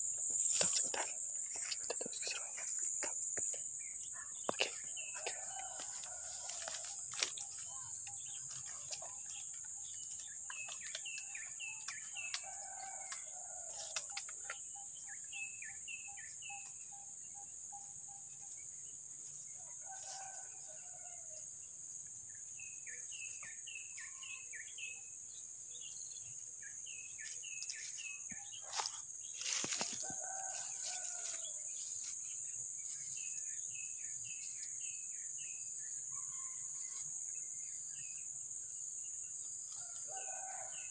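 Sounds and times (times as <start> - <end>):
high insect drone: 0.0 - 40.9.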